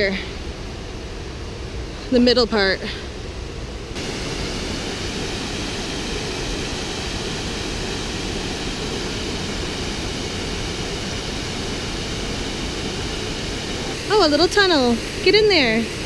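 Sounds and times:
waterfall rushing: 4.0 - 16.0.

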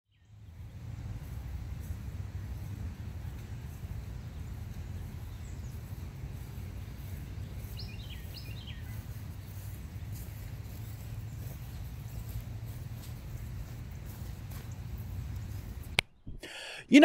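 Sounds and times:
bird chirping: 3.3 - 16.5.

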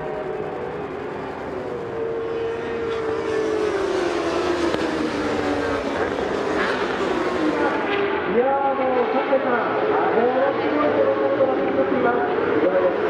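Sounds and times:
superbike engines racing past: 0.0 - 13.0.

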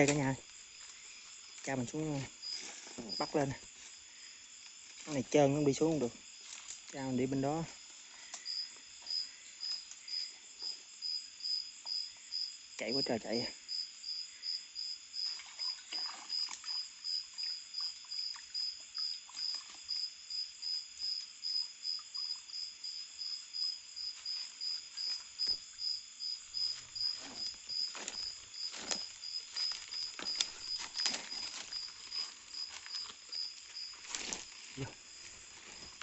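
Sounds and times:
insect chirping steadily: 0.0 - 36.0
rustling: 26.5 - 36.0.

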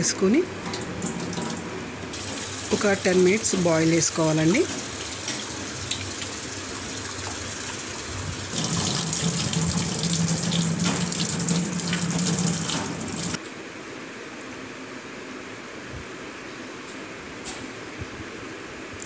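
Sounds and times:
tap water running into steel vessel: 0.6 - 3.0, 4.6 - 13.4.

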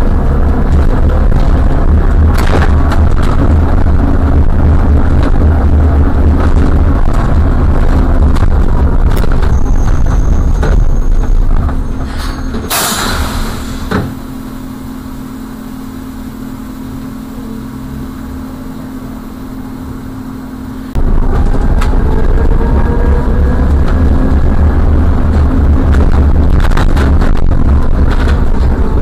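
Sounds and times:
car road and engine rumble: 0.0 - 29.0
quiet engine hum: 0.0 - 29.0
short hiss: 12.1 - 13.9.

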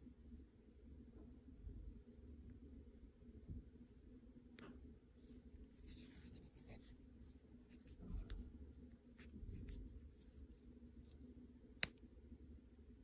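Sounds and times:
needle and thread through fabric: 5.2 - 11.9.

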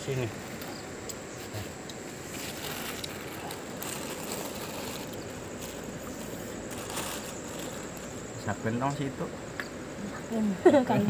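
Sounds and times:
plastic bag rustling: 0.0 - 8.5.

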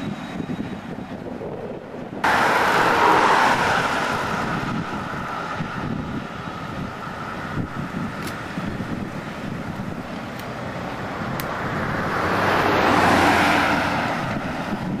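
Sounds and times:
rushing noise: 0.0 - 15.0.

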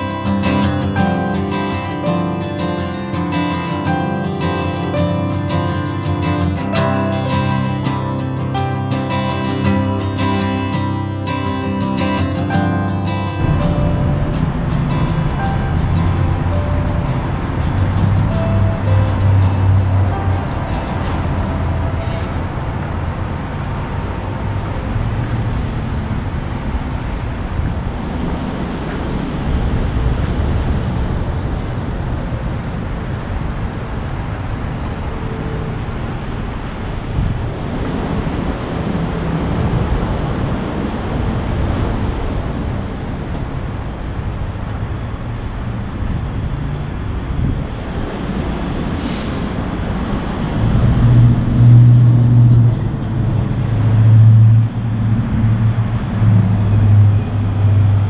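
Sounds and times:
road traffic: 0.0 - 58.0
wind noise on microphone: 13.4 - 58.0
brief hiss: 48.9 - 50.0.

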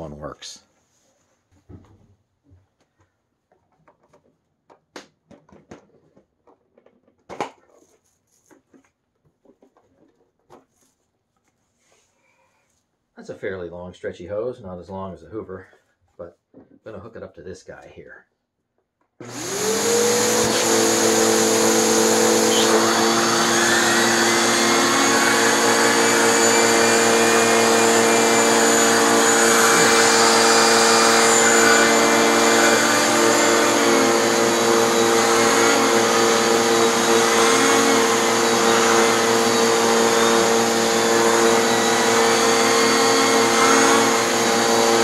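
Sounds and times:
vacuum cleaner motor running: 19.2 - 45.0
turbo brush spinning on fabric: 19.3 - 45.0.

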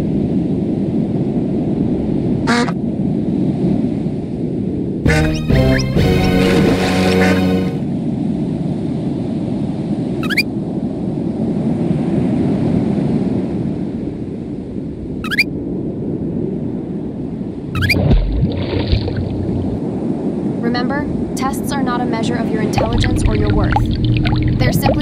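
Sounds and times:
cartoon surf rushing: 10.2 - 10.5, 15.2 - 15.5, 17.6 - 19.8
short rising chirps: 10.2 - 10.5, 15.2 - 15.5, 17.8 - 18.0
low thump: 17.9 - 19.8.

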